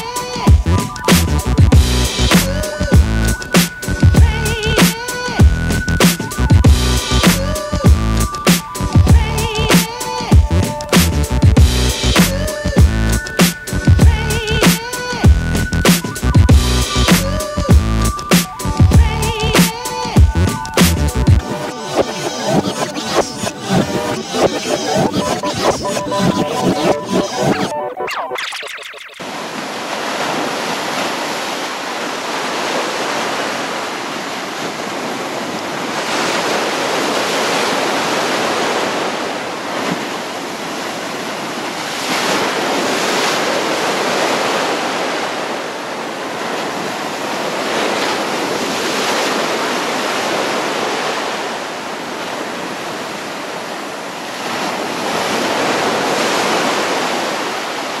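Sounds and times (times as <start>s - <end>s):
surf breaking on a shore: 0.0s - 0.6s, 2.1s - 5.4s, 7.0s - 11.0s, 29.2s - 58.0s.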